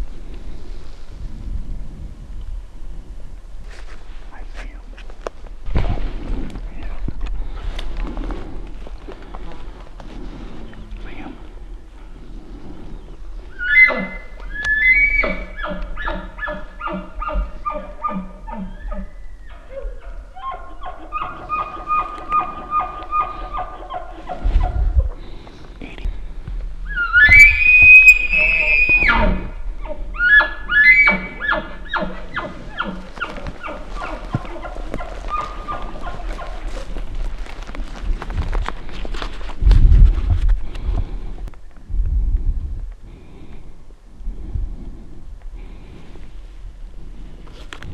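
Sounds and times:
elk bugling whistle: 13.6s - 16.3s, 26.9s - 29.6s, 30.2s - 32.9s
elk call blown by person: 26.9s - 29.6s.

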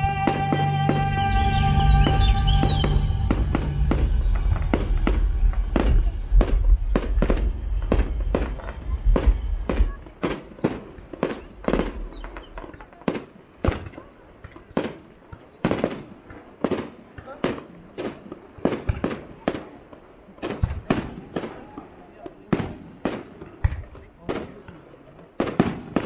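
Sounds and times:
fireworks bursting with bangs: 0.0s - 26.0s.

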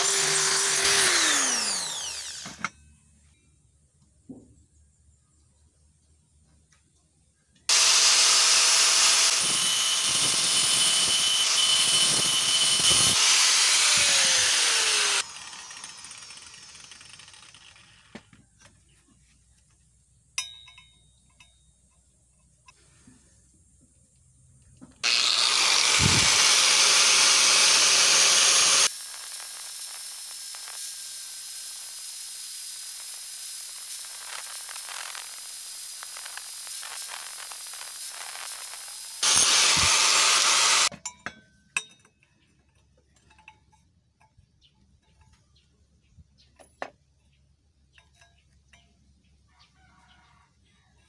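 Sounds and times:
angle grinder grinding metal: 0.0s - 2.7s, 7.7s - 18.2s, 25.0s - 40.9s.

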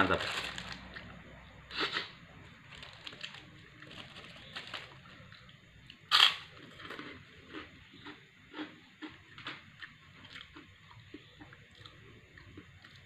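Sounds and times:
cracker crunching when bitten: 4.8s - 9.6s.

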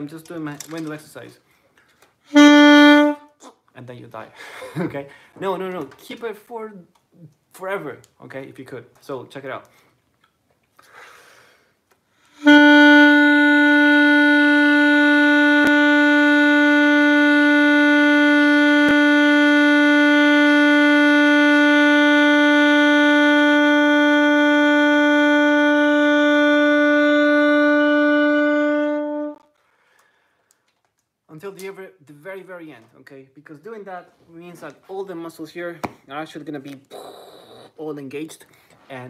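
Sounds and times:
saxophone long tone: 2.3s - 3.4s, 12.3s - 29.5s.

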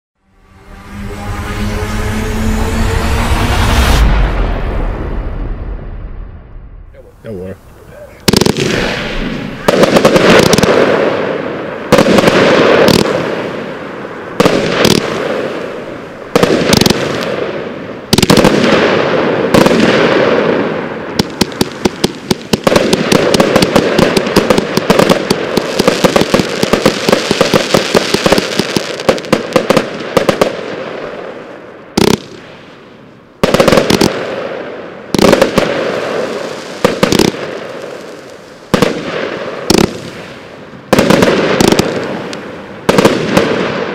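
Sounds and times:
fireworks cake firing shots: 8.2s - 13.4s, 14.4s - 15.6s, 16.4s - 30.9s, 33.4s - 43.9s.

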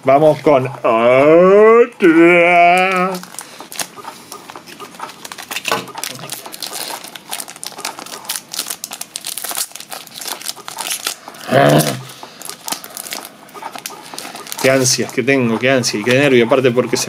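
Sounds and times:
foil wrapper crinkling: 2.8s - 17.0s.

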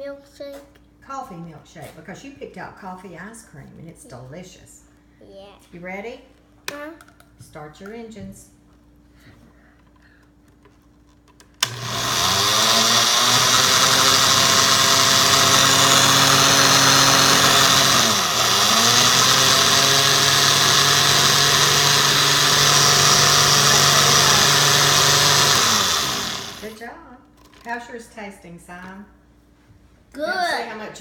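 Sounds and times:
electric blender running: 11.6s - 26.8s.

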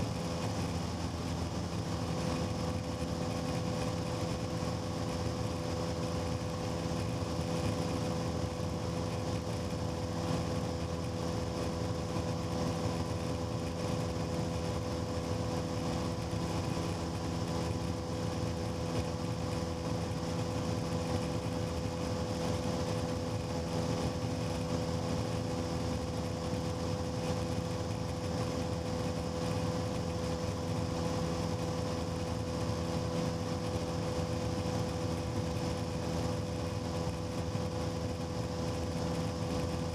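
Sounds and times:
airplane engine drone: 0.0s - 39.9s.

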